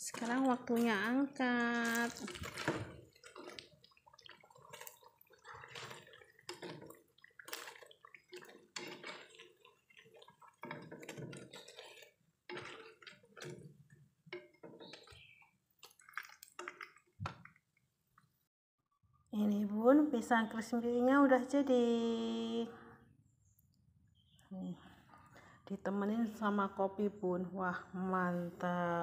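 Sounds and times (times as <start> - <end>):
hot oil crackling and spitting: 0.0 - 17.8
oil dripping into pan: 1.6 - 18.3.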